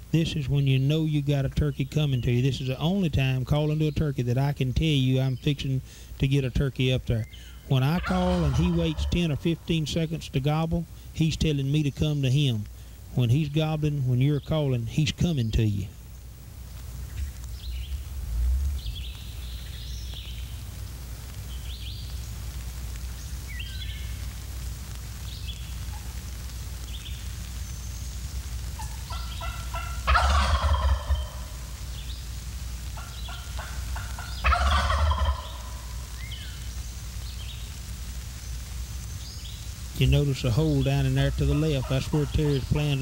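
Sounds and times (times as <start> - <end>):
faint songbird chirps: 7.1 - 7.8, 17.0 - 20.6, 23.1 - 24.2, 34.2 - 37.7
turkey gobbling: 7.3 - 10.2, 28.8 - 32.1, 33.0 - 36.6, 40.1 - 43.0
turkey call yelps: 7.4 - 9.6, 28.8 - 31.8, 33.0 - 36.6, 41.2 - 43.0.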